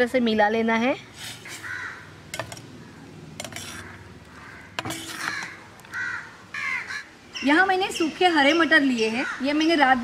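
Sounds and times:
spoon clinking against metal pot: 0:02.4 - 0:02.7, 0:03.4 - 0:03.8, 0:04.8 - 0:05.5
spoon stirring thick curry: 0:02.4 - 0:02.7, 0:03.4 - 0:06.0.

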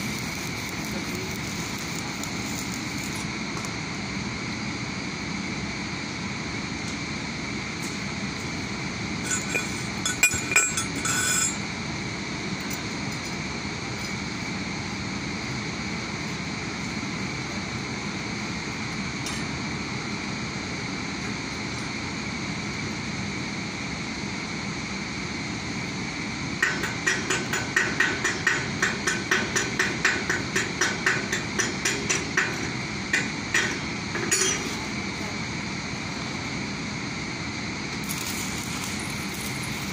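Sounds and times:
steady industrial hum: 0:00.0 - 0:39.9
hand tool striking steel rail: 0:26.6 - 0:34.7.

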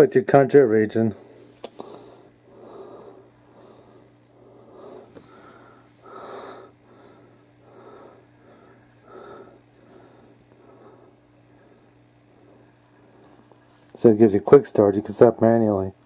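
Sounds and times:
low steady hum: 0:00.0 - 0:16.0
person breathing through nose: 0:01.2 - 0:12.6.

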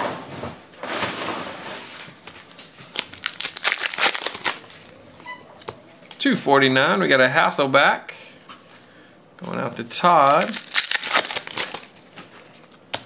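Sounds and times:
foil wrapper crinkling: 0:02.6 - 0:05.0, 0:10.2 - 0:12.8.

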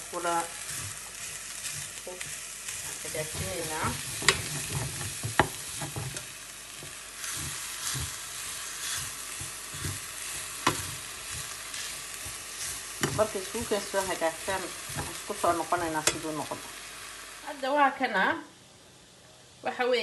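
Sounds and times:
filling sizzling in oil: 0:00.0 - 0:17.6
utensil scraping a pan: 0:00.6 - 0:16.3
utensil clicking on pan: 0:01.6 - 0:08.2, 0:08.8 - 0:16.6.

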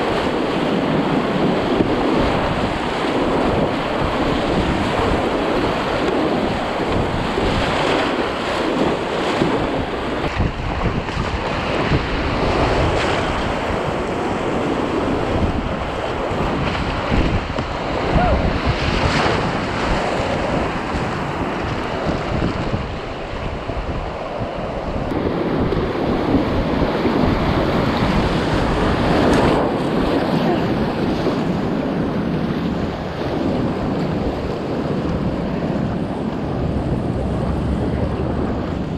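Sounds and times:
paddle splashes: 0:00.0 - 0:24.5
whitewater rapids rushing: 0:00.0 - 0:38.9
wind buffeting microphone: 0:00.0 - 0:38.9.

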